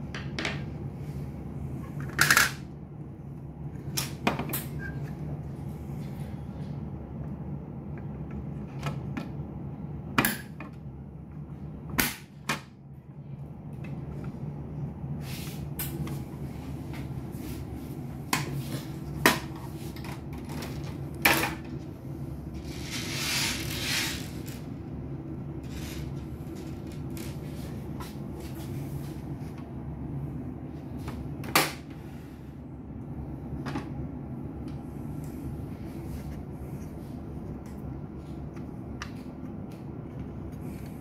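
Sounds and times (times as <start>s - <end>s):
scraping rustle: 22.6s - 24.6s.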